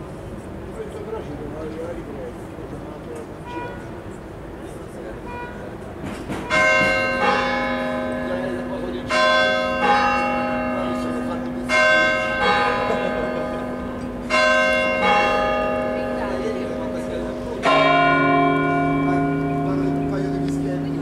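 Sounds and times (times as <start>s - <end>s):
church bells ringing: 6.4s - 21.0s.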